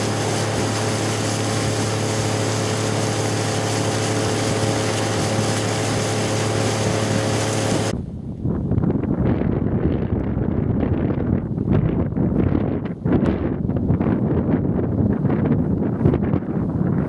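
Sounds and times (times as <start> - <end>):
boat motor running: 0.0 - 7.9.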